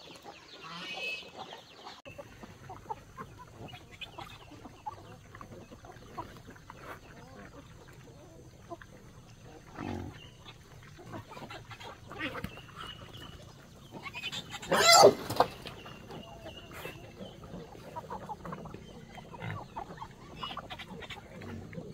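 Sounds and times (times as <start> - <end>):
chickens clucking: 0.0 - 21.9
loud chicken call: 14.4 - 15.3.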